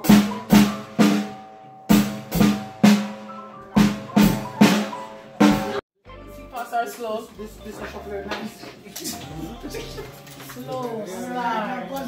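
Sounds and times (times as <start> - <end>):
drum kit strikes: 0.0 - 5.8.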